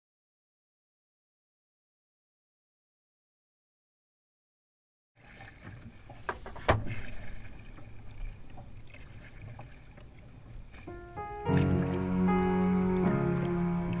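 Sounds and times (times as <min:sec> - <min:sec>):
water sloshing: 0:05.2 - 0:14.0
music: 0:10.9 - 0:14.0.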